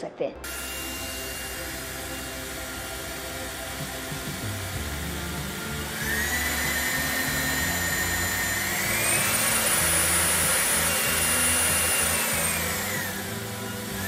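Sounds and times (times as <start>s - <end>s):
vacuum motor whine: 0.4s - 14.0s.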